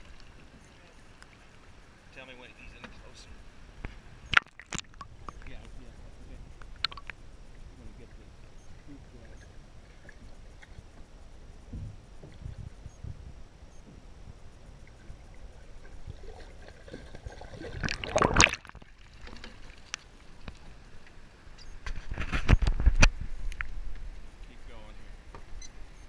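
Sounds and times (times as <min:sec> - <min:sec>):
muffled underwater noise: 0:00.3 - 0:13.2
splashing and knocks: 0:04.3 - 0:05.1, 0:16.1 - 0:20.0
churning splash: 0:15.1 - 0:20.4.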